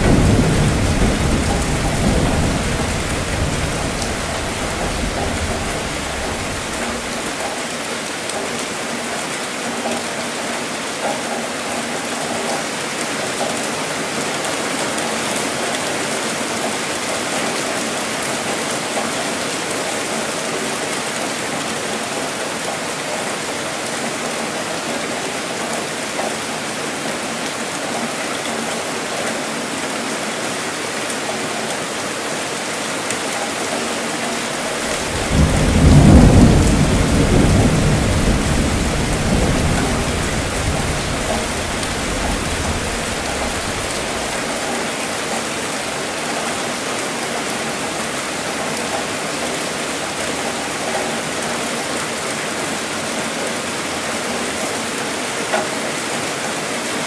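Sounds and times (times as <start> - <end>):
thunder rumbling: 0.0 - 7.4, 34.6 - 44.6
steady rainfall: 0.0 - 57.0.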